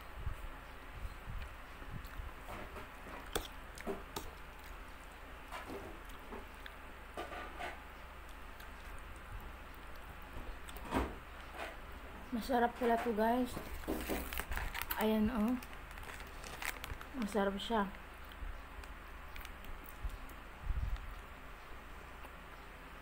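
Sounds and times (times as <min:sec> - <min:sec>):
chewing noodles: 0:02.0 - 0:05.2, 0:08.2 - 0:10.8.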